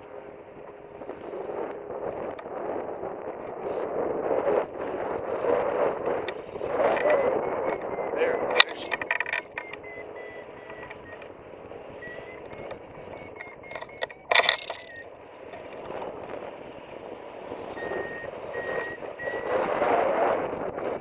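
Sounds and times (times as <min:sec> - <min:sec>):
wind rushing over microphone: 0:00.0 - 0:21.0
short high beeps: 0:06.8 - 0:15.8, 0:17.7 - 0:19.5.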